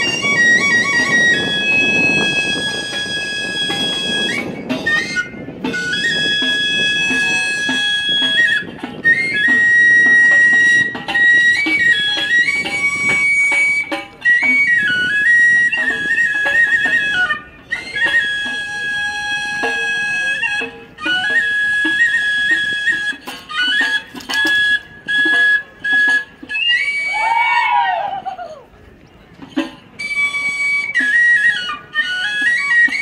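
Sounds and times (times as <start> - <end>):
flute melody: 0.0 - 33.0.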